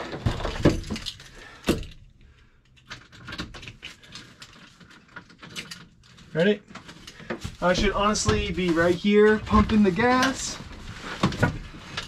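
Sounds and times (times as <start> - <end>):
small clicks and rattles: 2.6 - 7.4.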